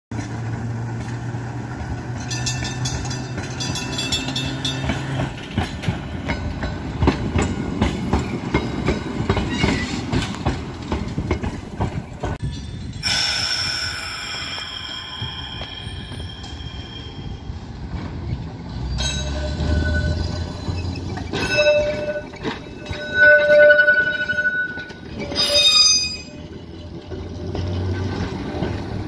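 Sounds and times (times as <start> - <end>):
wheels clattering over rails: 0.1 - 13.0, 17.7 - 29.0
streetcar low hum: 0.1 - 29.0
wheels squealing on rail: 7.0 - 10.6, 11.9 - 29.0.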